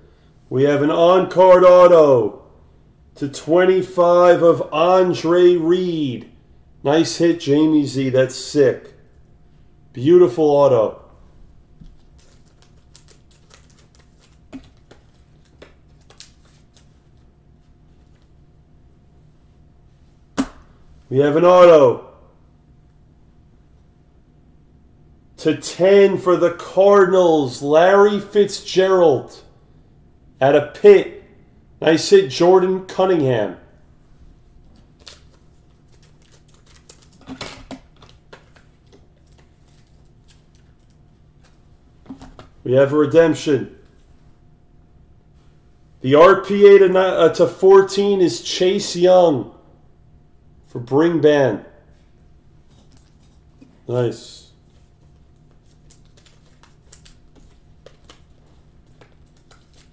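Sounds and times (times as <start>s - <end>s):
low steady hum: 0.0s - 59.9s
trading cards clicking and rustling: 11.8s - 17.0s, 34.7s - 42.6s, 54.7s - 59.9s.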